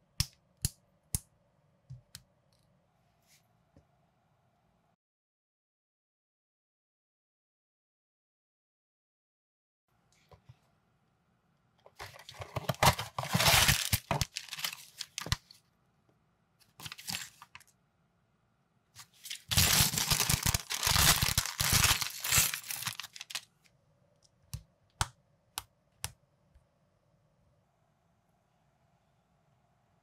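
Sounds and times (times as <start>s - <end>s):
cardboard box opening: 12.0s - 15.4s, 16.8s - 17.6s
paper rustling and tearing: 12.0s - 15.5s, 16.8s - 17.6s, 19.0s - 23.4s
plastic bag tearing and crinkling: 12.5s - 15.4s, 16.8s - 17.6s, 19.0s - 23.4s.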